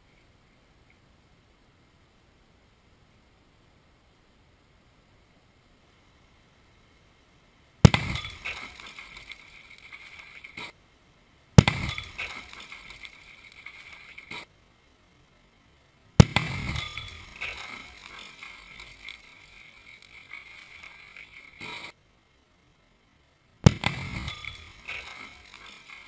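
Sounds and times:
firecracker bang: 0:07.8 - 0:09.3, 0:11.6 - 0:13.3, 0:16.2 - 0:21.8, 0:23.6 - 0:26.0
debris clattering and crackling: 0:07.8 - 0:10.6, 0:11.6 - 0:14.5, 0:16.2 - 0:21.9, 0:23.6 - 0:26.0.

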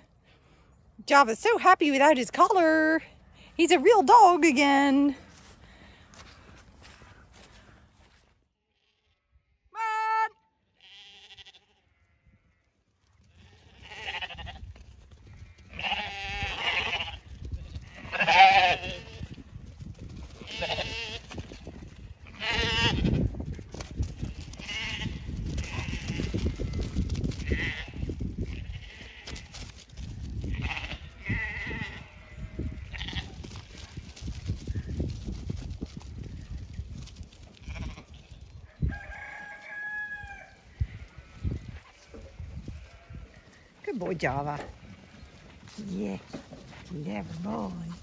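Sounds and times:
sheep bleating: 0:09.8 - 0:12.6, 0:13.2 - 0:14.6, 0:15.5 - 0:19.2, 0:20.4 - 0:21.3, 0:22.3 - 0:23.2, 0:24.6 - 0:26.6, 0:30.5 - 0:33.4.

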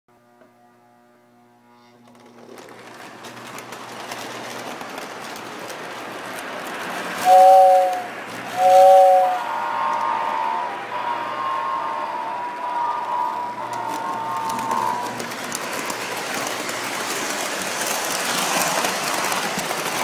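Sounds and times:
toy train motor and wheels: 0:02.0 - 0:10.1, 0:13.0 - 0:20.0
two-note train whistle: 0:07.2 - 0:15.1.

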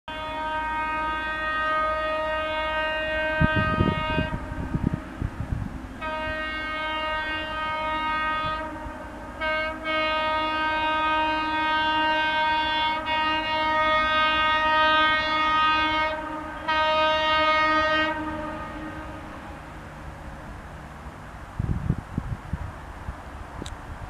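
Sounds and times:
locomotive horn blasts: 0:00.1 - 0:05.3, 0:06.0 - 0:19.8
low train rumble: 0:00.1 - 0:24.0.

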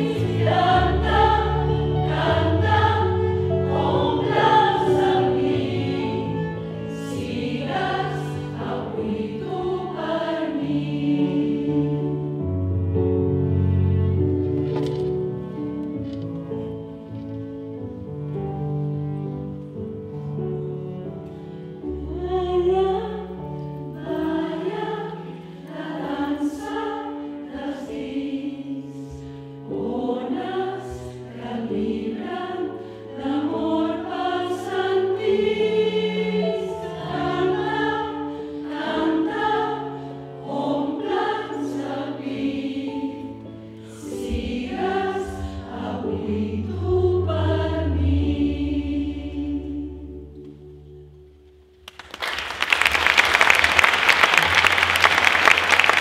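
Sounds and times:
women's choir singing: 0:00.0 - 0:12.6, 0:22.1 - 0:50.6
instrumental accompaniment: 0:00.0 - 0:28.4.

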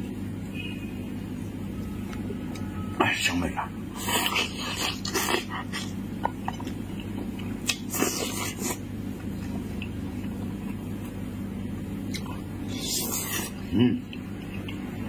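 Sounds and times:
man biting and sucking meat: 0:03.9 - 0:06.0, 0:07.4 - 0:10.9, 0:12.1 - 0:14.9
chewing: 0:04.0 - 0:11.2, 0:12.1 - 0:15.0.

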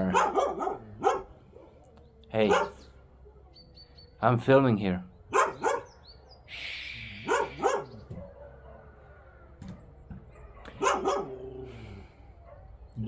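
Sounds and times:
dog barking: 0:00.0 - 0:01.8, 0:02.4 - 0:02.9, 0:05.3 - 0:06.2, 0:07.2 - 0:11.7, 0:12.4 - 0:12.9.

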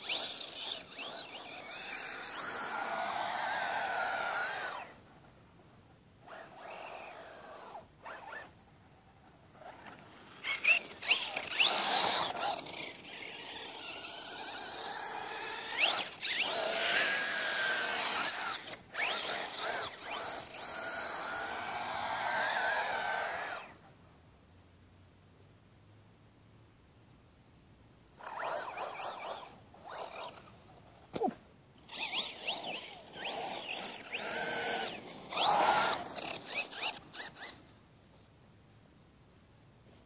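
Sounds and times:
rc car motor whining: 0:00.0 - 0:05.2, 0:06.2 - 0:08.6, 0:09.6 - 0:23.8, 0:28.2 - 0:37.7.

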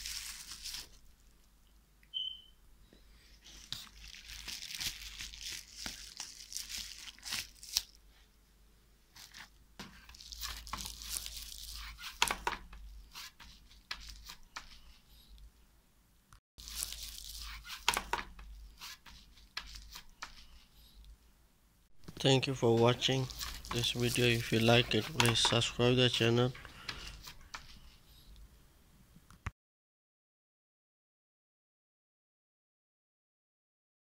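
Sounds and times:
plastic rustling: 0:00.0 - 0:01.4, 0:03.4 - 0:08.0, 0:09.1 - 0:12.4, 0:16.6 - 0:20.5, 0:22.0 - 0:27.7.

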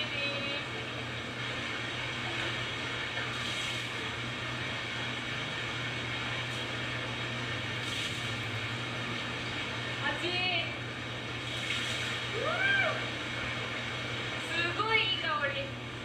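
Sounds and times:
water splashes from plastic basin: 0:07.8 - 0:08.5, 0:11.4 - 0:12.3
running water rushing: 0:11.0 - 0:14.4.

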